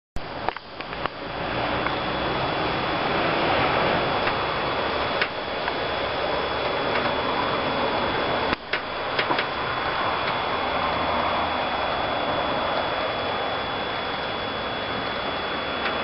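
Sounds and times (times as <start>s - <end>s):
wind rushing through roof tiles: 0.3s - 16.0s
sharp clicks: 0.4s - 1.2s, 5.1s - 5.8s, 8.5s - 9.6s.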